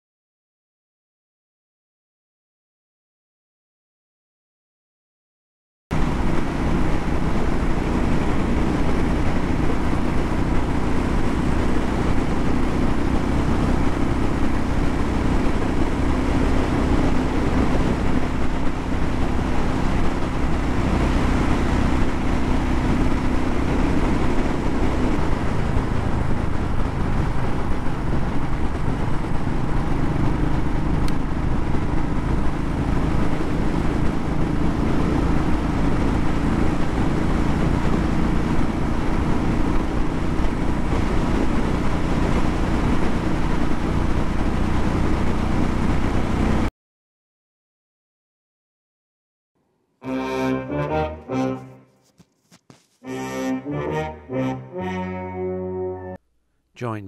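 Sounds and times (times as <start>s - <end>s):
road noise: 5.9s - 46.7s, 50.0s - 56.2s
wind noise on microphone: 5.9s - 46.7s
motorcycle engine cruising: 6.0s - 46.7s.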